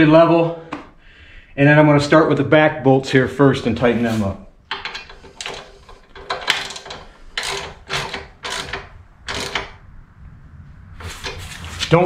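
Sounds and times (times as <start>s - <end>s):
hand ratchet clicking: 4.6s - 9.8s.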